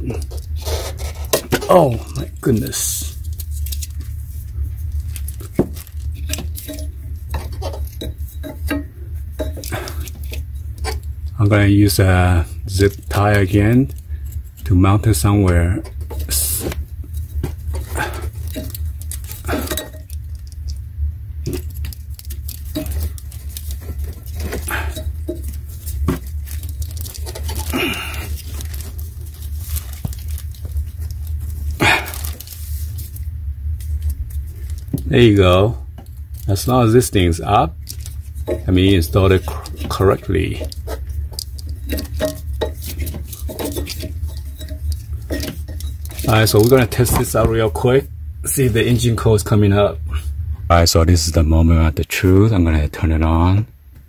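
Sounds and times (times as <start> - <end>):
clicks and rustling of wiring: 0.0 - 49.4
steady low hum: 0.0 - 54.0
handling clicks and knocks: 21.4 - 32.6, 34.6 - 47.7.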